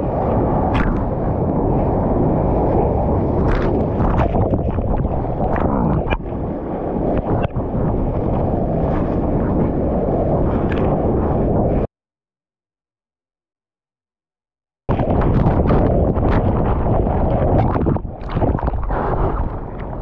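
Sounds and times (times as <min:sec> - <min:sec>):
ocean water rushing and churning: 0:00.0 - 0:11.9, 0:14.9 - 0:20.0
water splashes: 0:15.0 - 0:20.0.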